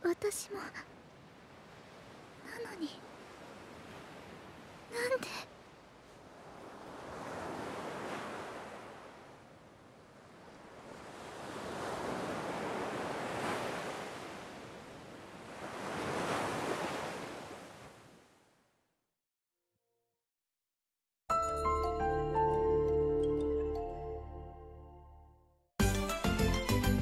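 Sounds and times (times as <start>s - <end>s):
ocean surf washing onto beach: 0.2s - 18.1s.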